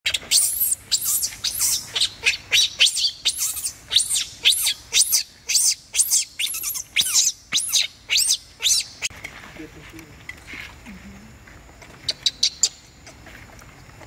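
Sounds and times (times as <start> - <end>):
infant monkey screaming: 0.1 - 9.0.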